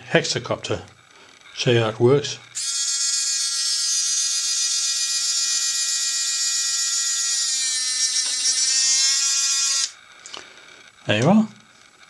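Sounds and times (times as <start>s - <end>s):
electric motor and gears whining: 1.0s - 10.4s.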